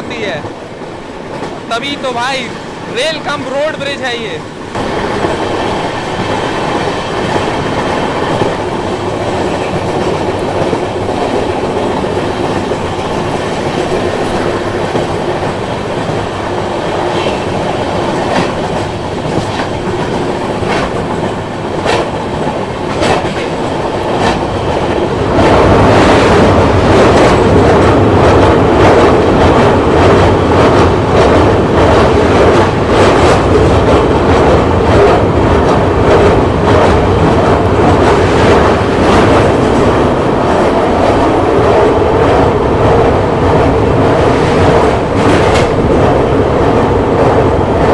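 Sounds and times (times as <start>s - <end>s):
train wheels rolling on rails: 0.0s - 47.9s
sharp clicks of rails: 18.0s - 37.3s.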